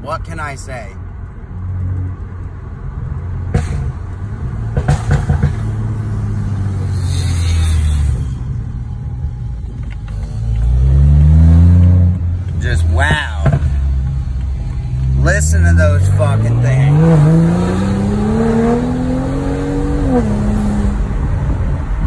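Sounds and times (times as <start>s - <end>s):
car engine under load: 1.0s - 22.0s
sharp exhaust pops: 4.7s - 5.8s.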